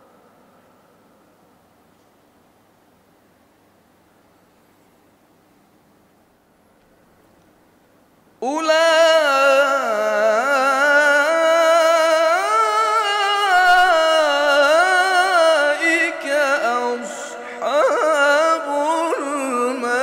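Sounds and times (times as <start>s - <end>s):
man chanting melodically: 8.4s - 20.0s.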